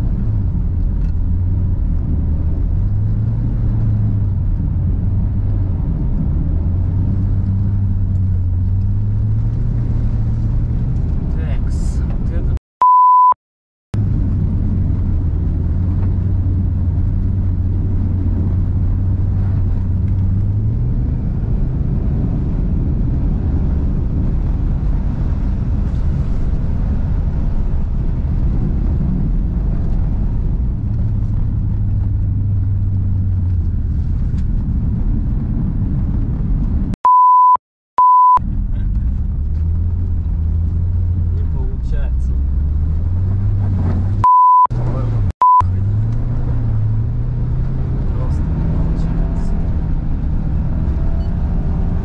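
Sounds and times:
short beeps: 12.8 - 13.4, 37.0 - 38.4, 44.2 - 44.7, 45.4 - 45.7
car engine running hard: 14.0 - 52.0.

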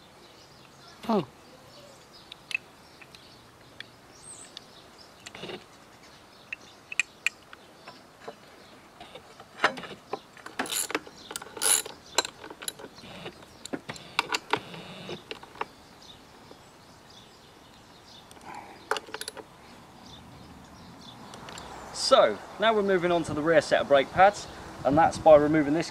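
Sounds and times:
hand tools clinking on metal: 9.6 - 14.7
socket ratchet clicking: 10.5 - 15.7.

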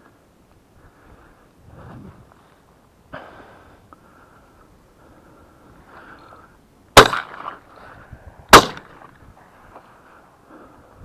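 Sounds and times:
faint wind: 0.0 - 11.0
shotgun shots echoing: 7.0 - 7.6, 8.5 - 9.0.

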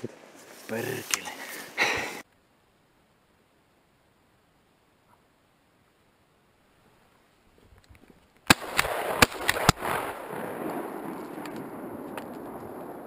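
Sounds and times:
shotgun blasts: 8.5 - 12.2.

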